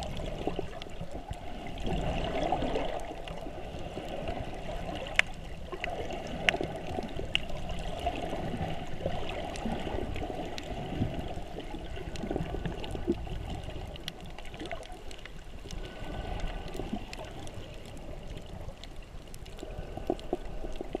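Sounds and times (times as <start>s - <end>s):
muffled underwater rush: 0.0s - 21.0s
sharp underwater clicks: 5.0s - 8.4s, 9.3s - 21.0s.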